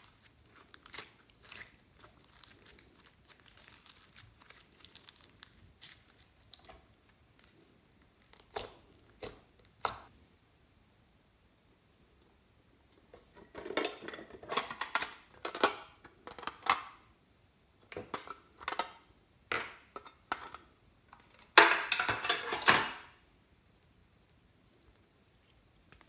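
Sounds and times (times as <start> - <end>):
metal tin clattering: 21.2 - 23.0.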